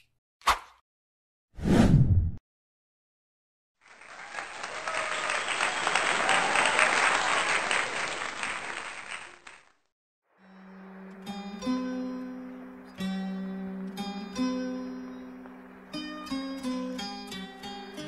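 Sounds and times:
crowd applause: 0:03.8 - 0:09.8.

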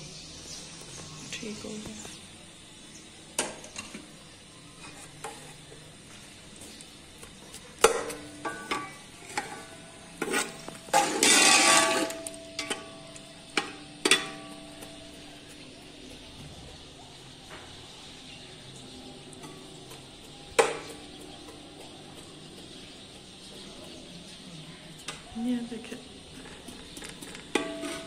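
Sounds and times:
metal spoon stirring in pot: 0:03.4 - 0:16.8, 0:26.0 - 0:28.0
dense scraping: 0:09.2 - 0:12.4
spoon knocking against pot: 0:19.4 - 0:24.0.

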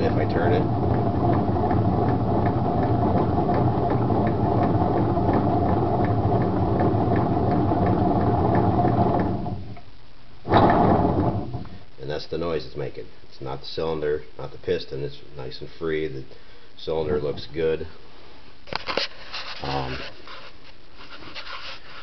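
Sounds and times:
scooter engine grinding rattle: 0:00.0 - 0:09.7
faint whine: 0:00.0 - 0:21.1.

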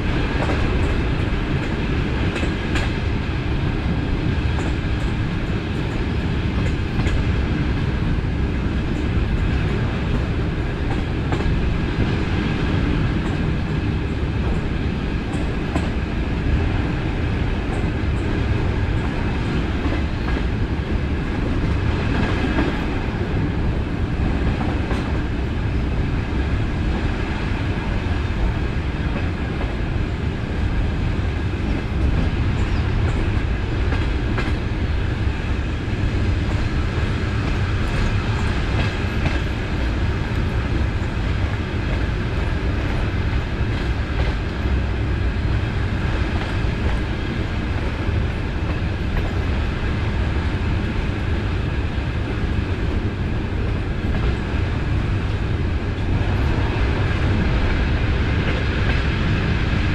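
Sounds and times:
train running gear rumble: 0:00.0 - 0:59.9.

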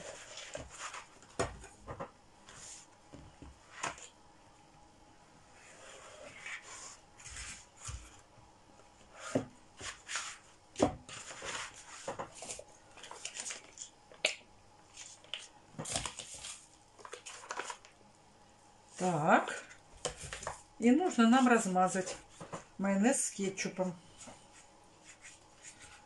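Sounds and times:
rustling and crinkling: 0:00.0 - 0:04.2, 0:05.6 - 0:08.3, 0:09.2 - 0:14.2, 0:14.9 - 0:18.0, 0:19.0 - 0:22.8.

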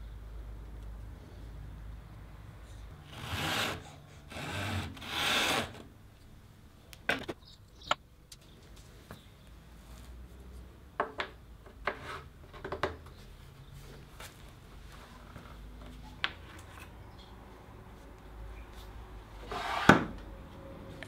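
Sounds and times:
wood rubbing on wood: 0:03.1 - 0:05.8
wooden knocks and taps: 0:11.0 - 0:13.1.

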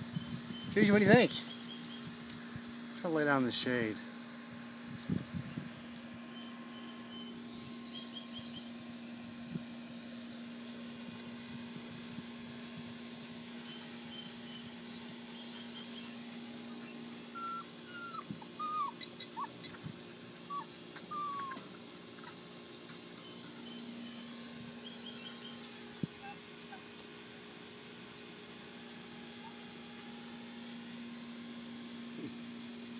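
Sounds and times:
steady low hum: 0:00.0 - 0:32.9
puppy whimpering: 0:17.3 - 0:22.3, 0:26.0 - 0:27.1.

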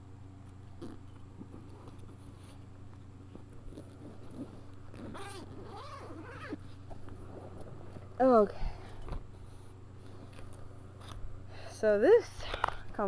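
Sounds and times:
steady low hum: 0:00.0 - 0:13.0
fabric bag clicks and rustles: 0:00.6 - 0:08.2.

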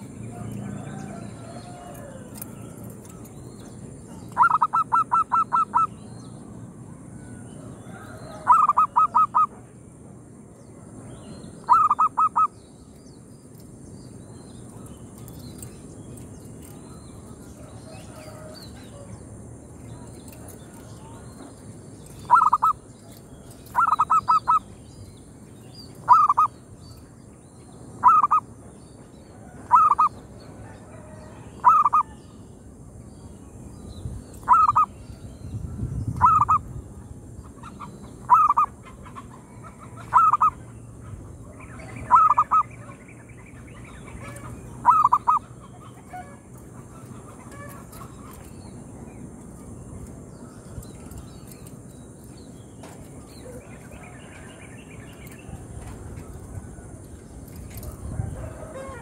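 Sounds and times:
dove cooing: 0:04.1 - 0:05.9, 0:08.3 - 0:09.6, 0:22.2 - 0:22.8, 0:23.6 - 0:24.6, 0:26.0 - 0:26.5, 0:28.0 - 0:28.4, 0:29.7 - 0:30.2, 0:31.6 - 0:32.2, 0:34.4 - 0:34.9, 0:38.2 - 0:38.7, 0:40.0 - 0:40.6, 0:42.1 - 0:42.7, 0:44.2 - 0:45.5.

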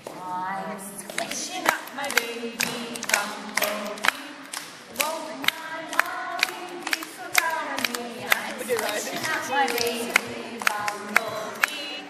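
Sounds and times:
women and children singing: 0:00.0 - 0:12.0
hands clapping: 0:01.1 - 0:12.0.

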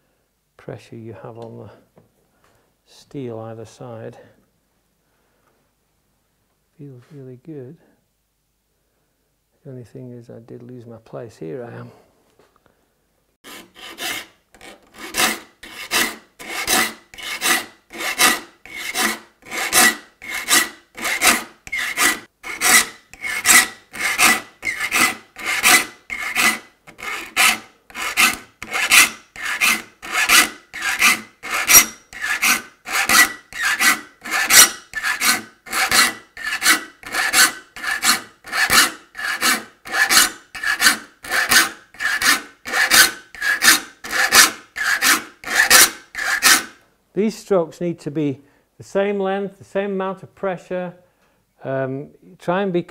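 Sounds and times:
file rasping on saw teeth: 0:13.4 - 0:46.8.

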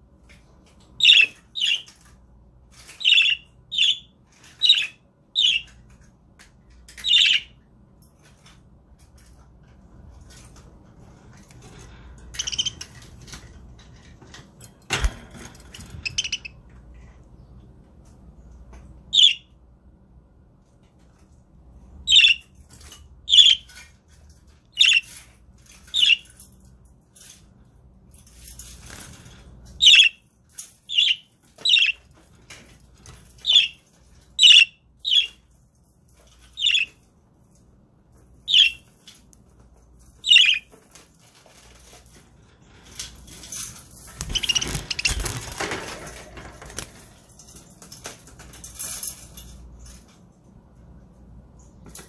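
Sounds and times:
budgerigars chirping: 0:01.0 - 0:01.8, 0:03.0 - 0:05.7, 0:12.4 - 0:12.9, 0:16.0 - 0:16.6, 0:19.2 - 0:19.4, 0:22.1 - 0:22.4, 0:24.8 - 0:25.1, 0:29.8 - 0:30.2, 0:30.9 - 0:32.0, 0:34.4 - 0:35.4, 0:36.6 - 0:36.9, 0:38.5 - 0:38.8, 0:40.2 - 0:40.7, 0:44.3 - 0:45.3
rustling and fluttering: 0:22.6 - 0:29.9, 0:38.9 - 0:50.6.

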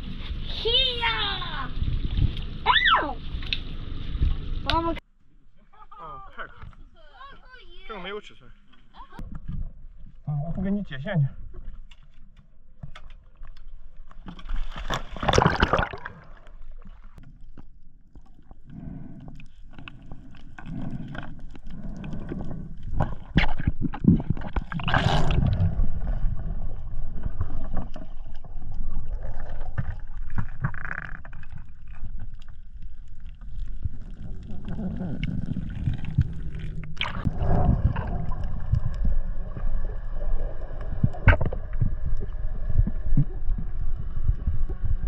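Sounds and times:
water splash: 0:14.2 - 0:17.2, 0:23.0 - 0:32.4, 0:33.5 - 0:43.5
muffled underwater bubbling: 0:19.8 - 0:45.0.

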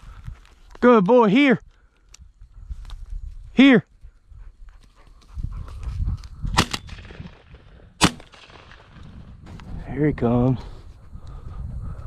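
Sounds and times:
low rustle of movement: 0:01.8 - 0:06.5
shotgun shots: 0:06.5 - 0:09.2.

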